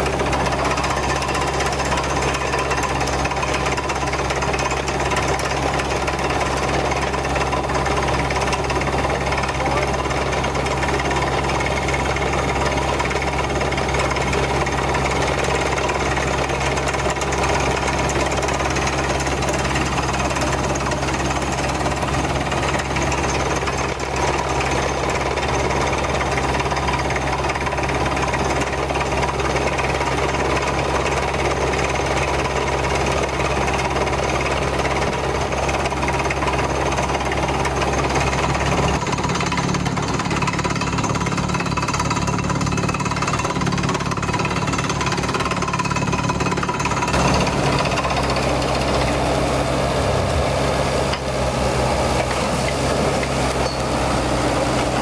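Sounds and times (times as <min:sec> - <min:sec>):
engine drone: 0:00.0 - 0:55.0.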